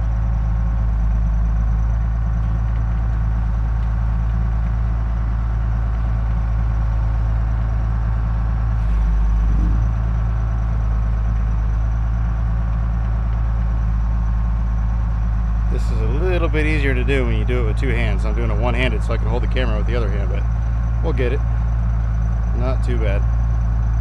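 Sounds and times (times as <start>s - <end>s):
diesel engine running: 0.0s - 24.0s.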